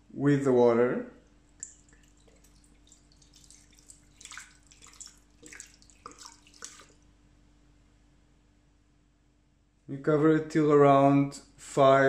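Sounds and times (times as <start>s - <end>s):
water splashing into a pot: 1.5s - 7.0s.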